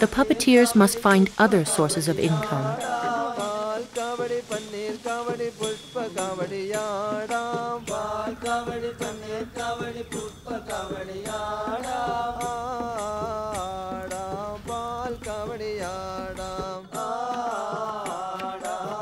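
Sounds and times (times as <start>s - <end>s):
chanted vocal melody: 0.0s - 19.0s
percussive beat: 0.0s - 19.0s.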